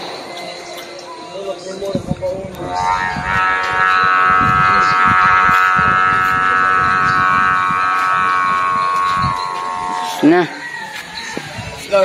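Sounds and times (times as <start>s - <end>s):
wind rumble on microphone: 1.9s - 11.9s
kite hummer buzzing drone: 2.1s - 10.6s.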